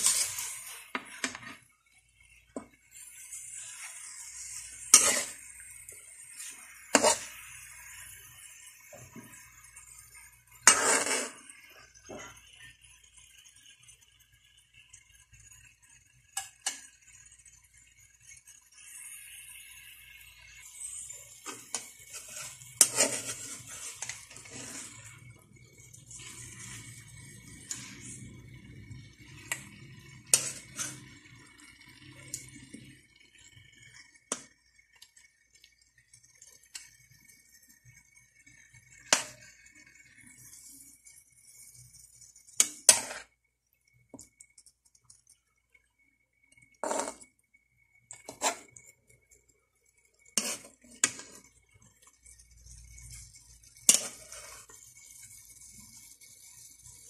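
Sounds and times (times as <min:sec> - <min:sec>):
metal ladle scraping a wok: 0:00.0 - 0:01.6, 0:02.6 - 0:09.4, 0:10.6 - 0:12.4, 0:20.6 - 0:31.6, 0:38.9 - 0:40.8, 0:42.4 - 0:43.3, 0:46.8 - 0:47.3, 0:48.1 - 0:48.8, 0:50.3 - 0:51.6, 0:52.6 - 0:57.0.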